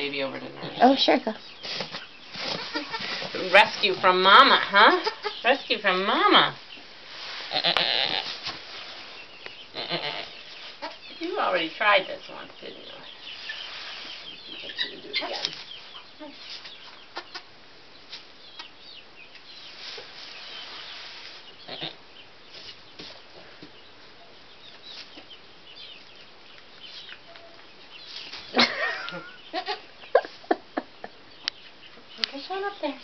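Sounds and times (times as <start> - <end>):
straw bedding rustling: 1.6 - 4.8, 5.7 - 16.8, 19.6 - 21.9.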